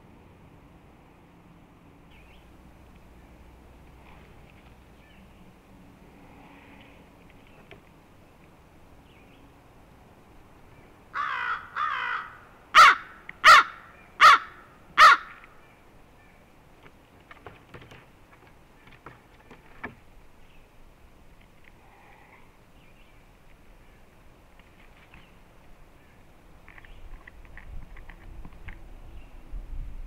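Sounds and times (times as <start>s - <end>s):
crow cawing: 11.1s - 15.4s.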